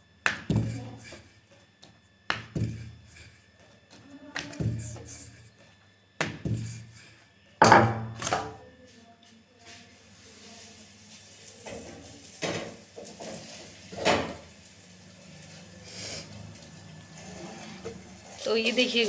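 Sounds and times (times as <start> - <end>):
wooden rolling pin knocking on stone: 4.4 - 5.1, 6.2 - 6.8, 7.6 - 8.6.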